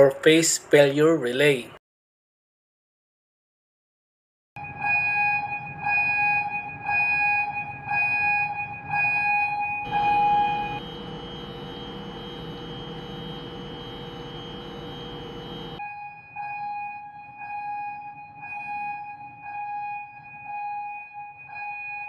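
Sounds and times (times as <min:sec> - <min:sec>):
background noise: 0:00.0 - 0:01.8
pulsing alarm beeps: 0:04.6 - 0:22.0
steady alarm tone: 0:04.6 - 0:22.0.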